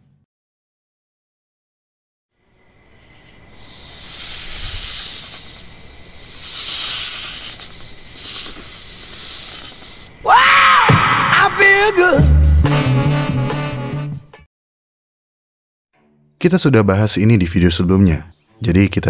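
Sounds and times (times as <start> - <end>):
insects chirring: 2.4 - 12.7
snake hissing: 3.2 - 12.5.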